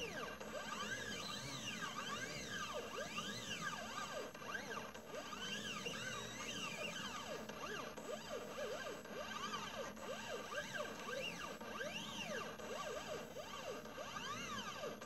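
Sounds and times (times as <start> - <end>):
stepper motors whining: 0.0 - 14.9.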